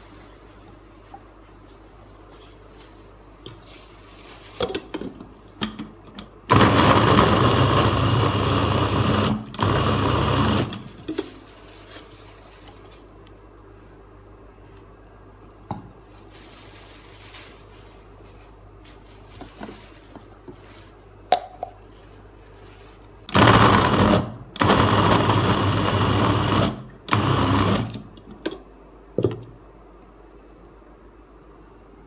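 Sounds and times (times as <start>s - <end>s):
electric chopper motor running: 23.3s - 28.0s.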